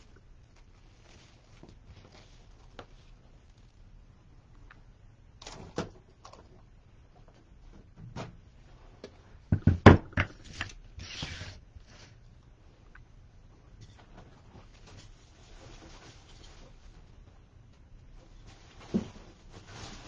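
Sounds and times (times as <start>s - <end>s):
objects knocking on a table: 9.5s - 10.4s.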